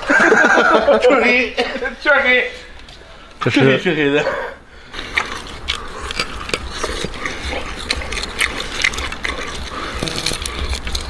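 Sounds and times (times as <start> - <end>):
chewing and lip-smacking: 4.9 - 11.0.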